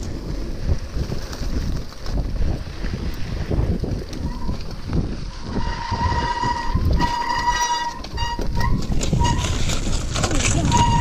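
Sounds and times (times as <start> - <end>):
trail rumble: 0.0 - 11.0
wind: 0.0 - 11.0
bicycle brakes squealing: 5.4 - 9.7, 10.6 - 11.0.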